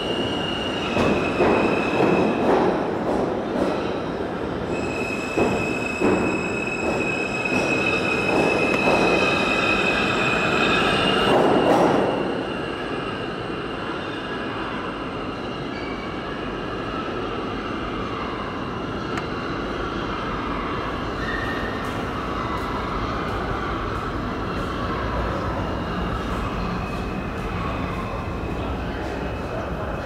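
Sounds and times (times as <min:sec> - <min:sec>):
subway train rail noise: 0:00.0 - 0:30.0
high-pitched train tones: 0:04.6 - 0:18.8.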